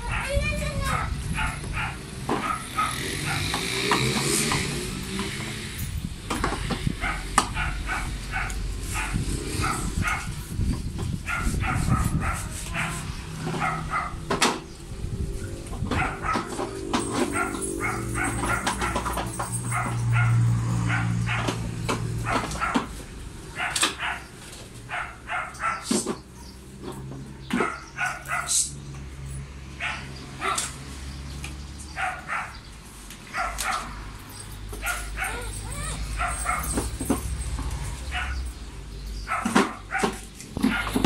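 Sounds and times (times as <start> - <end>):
dog barking: 0.0 - 3.6, 7.0 - 10.4, 11.2 - 14.3, 15.9 - 21.6, 22.2 - 22.9, 23.5 - 26.6, 27.3 - 28.6, 29.8 - 30.8, 31.9 - 32.6, 33.3 - 34.0, 34.8 - 36.9, 38.1 - 38.5, 39.2 - 41.0
low hum: 14.1 - 19.4.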